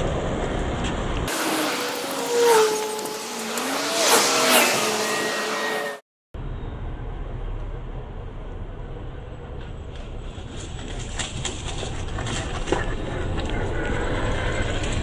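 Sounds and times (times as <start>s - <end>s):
cars passing: 0.0s - 6.0s
outdoor background noise: 0.0s - 15.0s
electric motor and gears whining: 1.3s - 6.0s.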